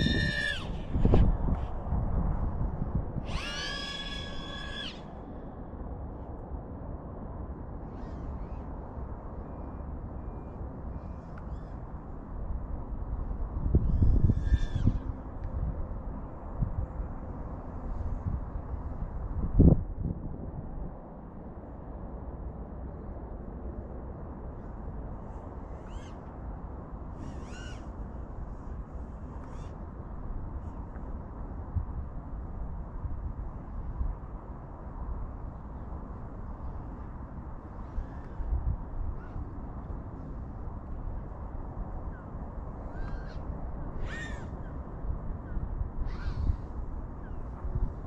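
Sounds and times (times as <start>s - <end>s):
faint high animal calls: 0.0s - 1.2s, 3.2s - 5.5s, 7.9s - 8.7s, 9.4s - 11.8s, 13.8s - 15.2s, 25.7s - 26.3s, 27.2s - 28.0s, 29.4s - 29.8s, 39.1s - 39.5s, 42.1s - 44.8s, 45.4s - 47.5s
bird calls: 25.8s - 26.2s, 27.2s - 27.9s, 42.9s - 44.8s, 45.4s - 47.5s.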